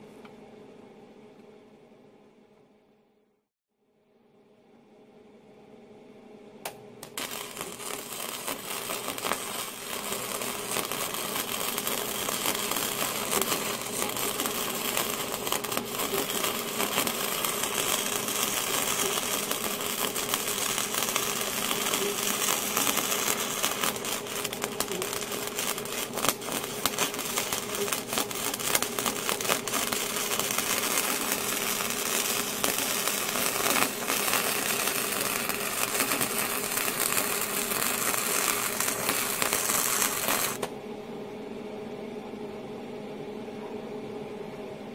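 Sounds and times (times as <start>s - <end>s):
welding arc crackling: 7.0s - 40.7s.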